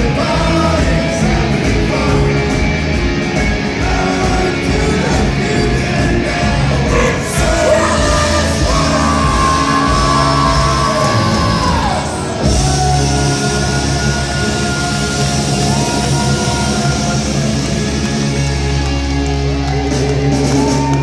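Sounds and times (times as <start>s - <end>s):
live rock band playing: 0.0s - 21.0s
shouted singing: 3.8s - 18.3s.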